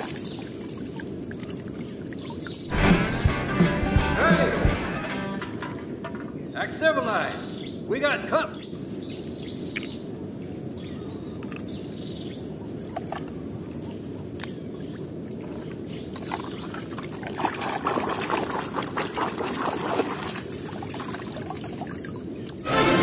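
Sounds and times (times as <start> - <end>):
hand splashing water in a tub: 16.2 - 22.0.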